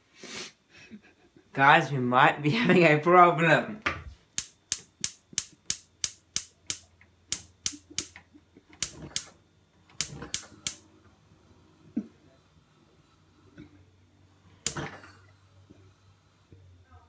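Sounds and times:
gas stove igniter clicking: 4.3 - 10.9, 14.6 - 15.0.

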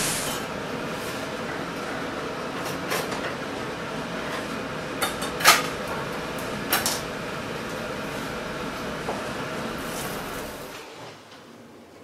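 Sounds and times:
steady hiss: 0.0 - 0.5.

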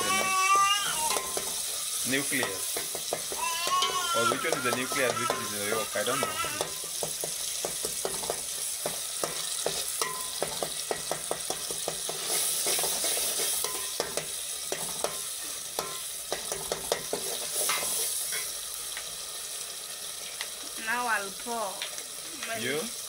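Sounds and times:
sauce sizzling: 0.0 - 23.0
spoon clinking against pot: 1.1 - 1.6, 6.6 - 13.0, 13.6 - 18.5.

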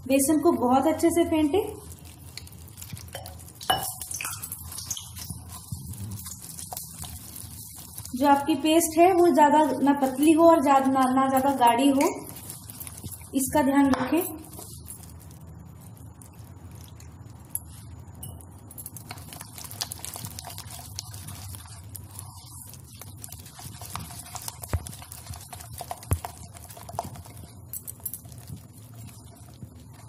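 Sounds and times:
hand beating batter in bowl: 19.3 - 30.0.

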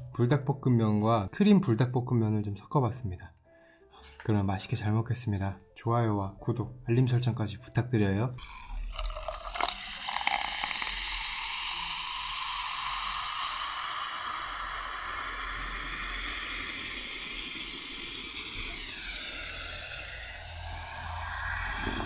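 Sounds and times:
cola pouring over ice: 8.4 - 20.4
carbonation fizz: 8.4 - 22.0.

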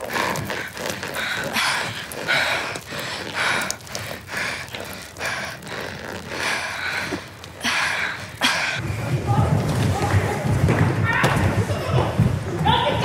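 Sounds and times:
person breathing hard: 0.0 - 8.9.

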